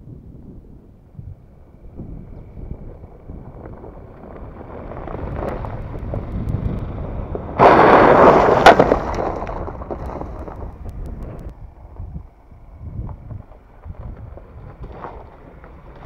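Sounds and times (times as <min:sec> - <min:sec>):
pickup engine and tyre noise: 0:00.0 - 0:16.0
sharp crack: 0:04.4 - 0:11.6.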